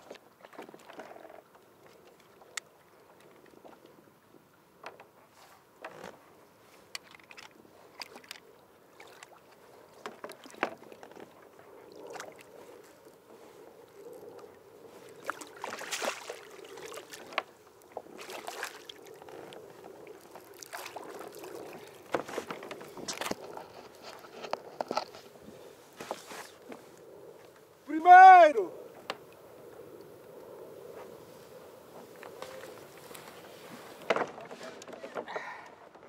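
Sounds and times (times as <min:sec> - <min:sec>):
water washing against hull: 0:07.1 - 0:27.0.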